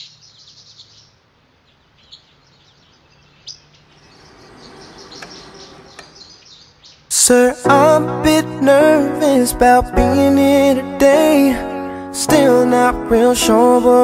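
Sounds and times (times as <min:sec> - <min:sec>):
small birds chirping: 0:00.0 - 0:07.5.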